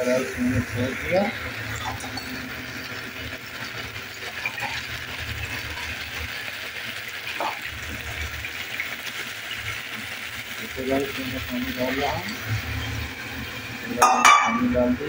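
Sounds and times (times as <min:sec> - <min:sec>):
grains ticking against metal: 0:10.6 - 0:13.1.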